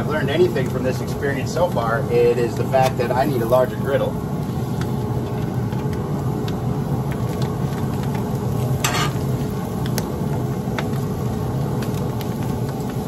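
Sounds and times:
food sizzling on griddle: 0.0 - 13.0
metal spatula scraping: 8.8 - 9.2.

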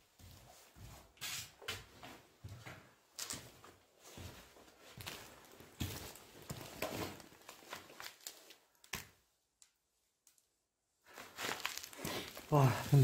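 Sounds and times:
rustling of handled objects: 3.1 - 9.2, 11.0 - 13.0.

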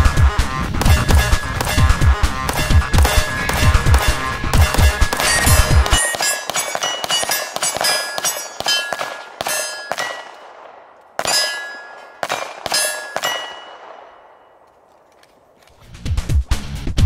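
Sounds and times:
steel plate targets ringing: 0.8 - 10.6, 11.2 - 14.6
rapid pistol shots: 0.8 - 14.3.

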